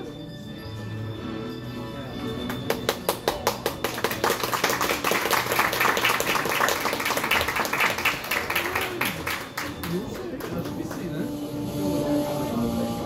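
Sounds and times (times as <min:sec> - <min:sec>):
audience applause: 0:02.5 - 0:11.3.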